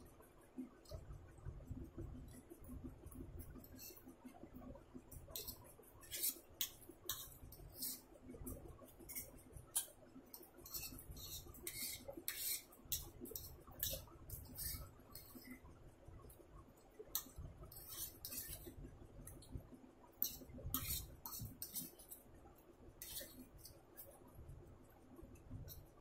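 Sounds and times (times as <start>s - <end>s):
fork scraping ceramic plate: 3.6s - 4.0s, 5.3s - 8.0s, 9.0s - 15.4s, 17.2s - 18.7s, 20.2s - 22.2s, 23.0s - 24.1s.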